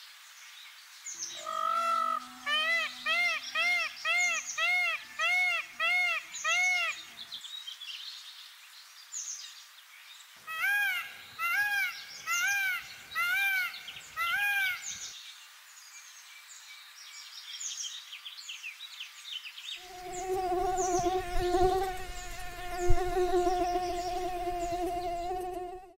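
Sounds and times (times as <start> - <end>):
buzzing hum of two tones: 20.0 - 25.9.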